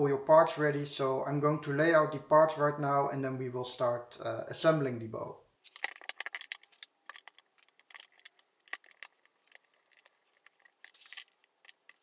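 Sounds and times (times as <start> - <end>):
clicks and rattles of parts: 5.6 - 12.0.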